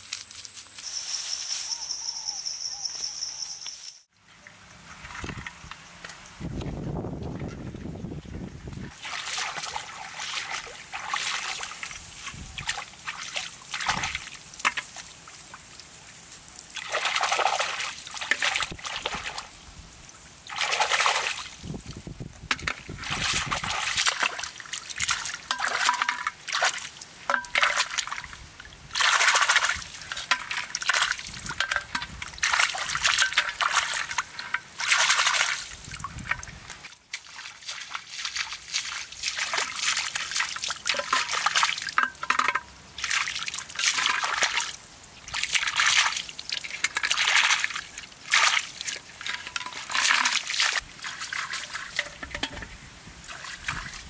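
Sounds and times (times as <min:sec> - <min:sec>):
muddy floodwater splashing: 0:08.8 - 0:19.7, 0:20.4 - 0:54.0.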